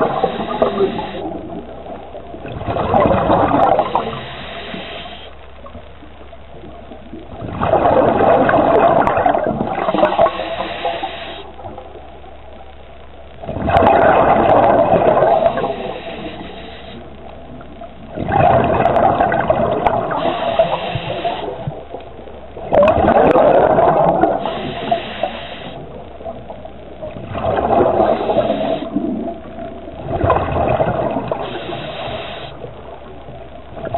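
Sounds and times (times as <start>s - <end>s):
diver breathing through regulator: 0.0s - 1.3s, 3.6s - 5.3s, 9.8s - 11.5s, 15.2s - 17.0s, 20.1s - 21.8s, 24.3s - 25.9s, 27.9s - 29.1s, 31.3s - 32.6s
exhaled bubbles rushing: 0.0s - 4.8s, 5.6s - 12.1s, 13.4s - 33.9s.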